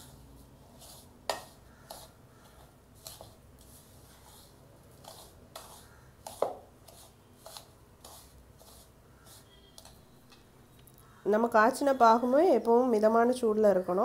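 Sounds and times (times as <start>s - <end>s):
hand rubbing gritty mixture: 0.0s - 10.1s.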